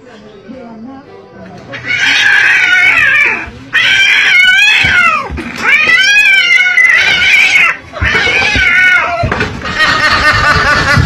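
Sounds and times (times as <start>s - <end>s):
cat yowling: 1.7s - 11.0s.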